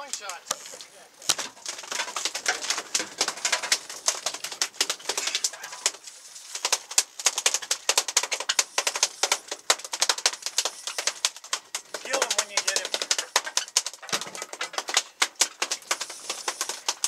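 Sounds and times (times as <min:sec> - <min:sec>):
fishing reels clicking: 0:00.5 - 0:07.6, 0:15.8 - 0:17.0.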